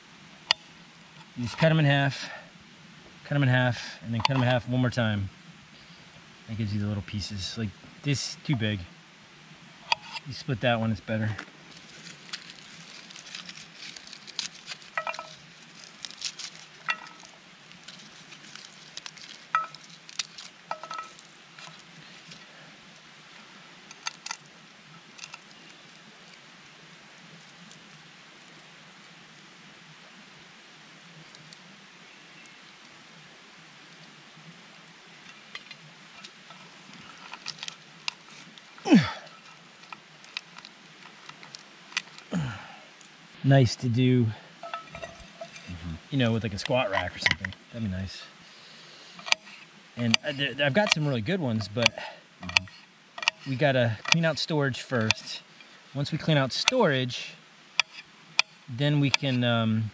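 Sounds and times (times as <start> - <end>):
garlic skins crackling: 11.0 - 22.6, 23.3 - 28.7, 35.3 - 43.2, 44.6 - 48.2, 49.2 - 57.0.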